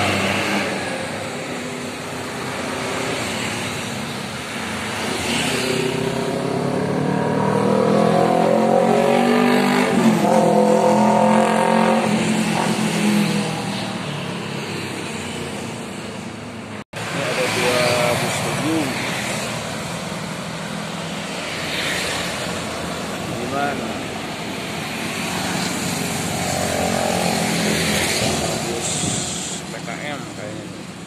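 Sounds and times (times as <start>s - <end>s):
motorcycles and buses passing: 0.0s - 31.0s
engine revving: 5.0s - 14.0s, 24.8s - 30.1s.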